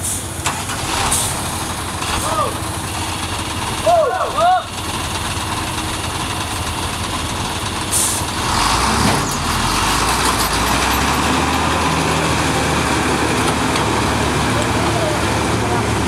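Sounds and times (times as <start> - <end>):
air brakes hissing: 0.0 - 0.4, 7.9 - 8.3
diesel truck engine under load: 0.0 - 16.0.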